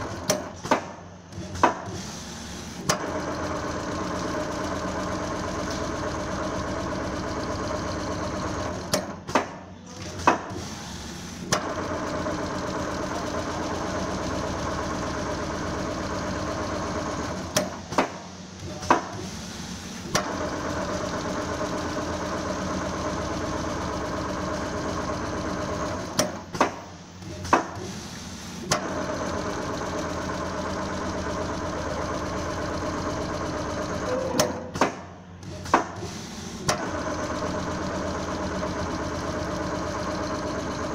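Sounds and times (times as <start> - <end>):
sewing machine stitching: 0.0 - 9.4, 10.0 - 40.9.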